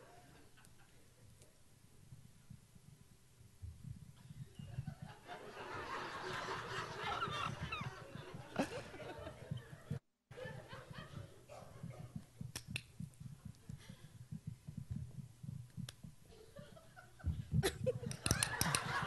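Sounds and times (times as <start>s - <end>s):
audience noise: 5.2s - 11.3s.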